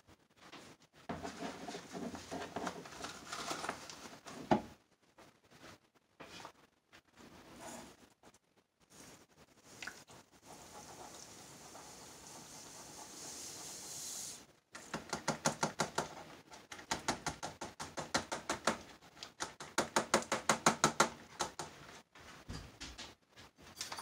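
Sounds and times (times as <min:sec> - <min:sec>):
powder pouring into water hiss: 0:08.9 - 0:14.5.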